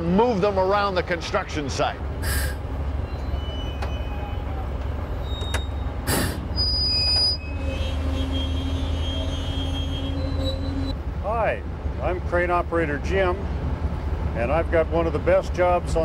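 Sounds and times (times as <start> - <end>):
diesel engine low rumble: 0.0 - 16.0
short hisses: 2.2 - 2.6, 6.1 - 6.5.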